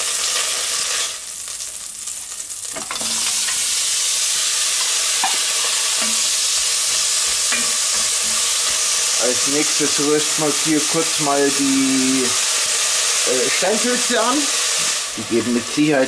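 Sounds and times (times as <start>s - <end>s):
fat sizzling in a pot: 0.0s - 16.0s
utensil scraping and stirring pot: 5.1s - 9.2s.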